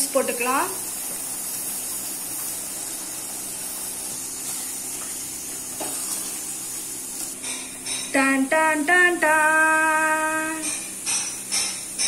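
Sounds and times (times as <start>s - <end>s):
curry bubbling and sizzling: 0.5s - 7.4s.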